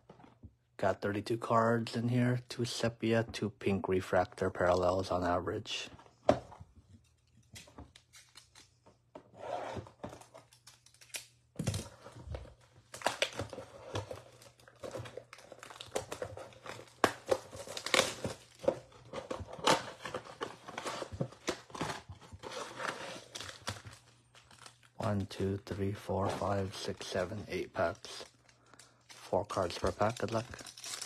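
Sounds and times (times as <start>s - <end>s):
foil packs crinkling: 12.8s - 31.0s.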